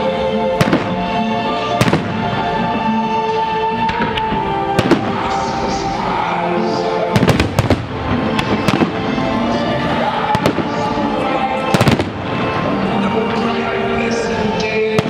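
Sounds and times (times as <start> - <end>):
music: 0.0 - 15.0
firework shells bursting: 3.9 - 5.6, 7.2 - 9.3, 11.7 - 12.6.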